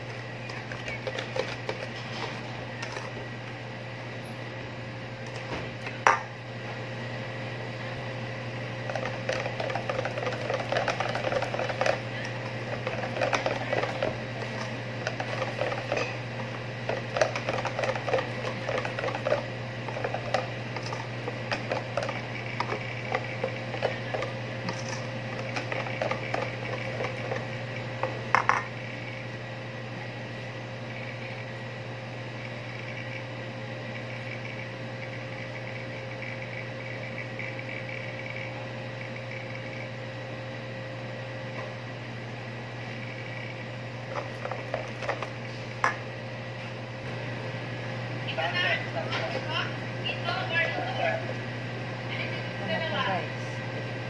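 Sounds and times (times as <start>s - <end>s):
steady low hum: 0.0s - 54.0s
whisk beating batter in metal bowl: 8.9s - 16.2s, 16.8s - 27.6s.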